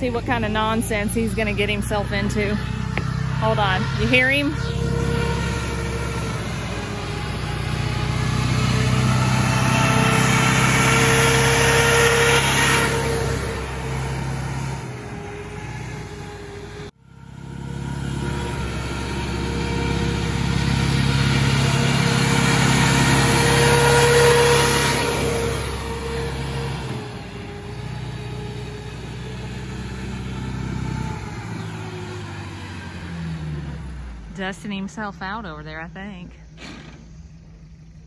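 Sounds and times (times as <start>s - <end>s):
jeep engine running hard: 0.0s - 38.0s.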